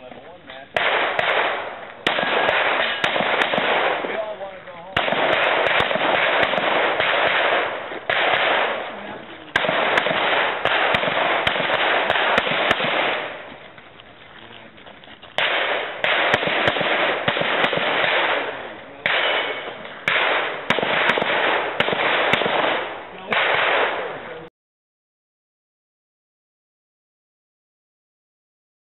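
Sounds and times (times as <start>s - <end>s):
handgun shots: 0.8s - 4.2s, 5.0s - 8.9s, 9.5s - 13.4s, 15.4s - 24.2s.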